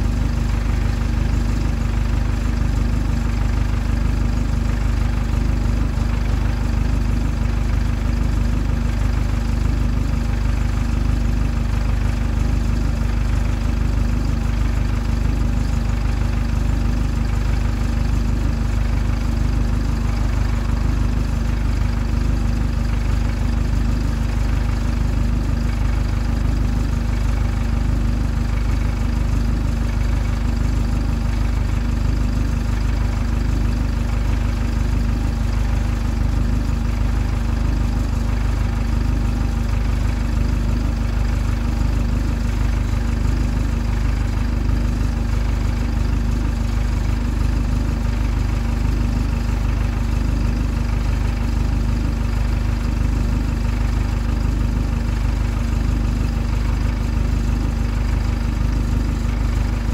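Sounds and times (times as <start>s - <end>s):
bus diesel engine idling: 0.0s - 59.9s.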